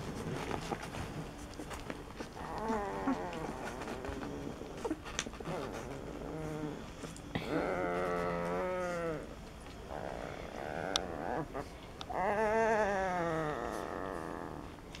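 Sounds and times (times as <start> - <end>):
puppy whining: 0.0 - 14.8.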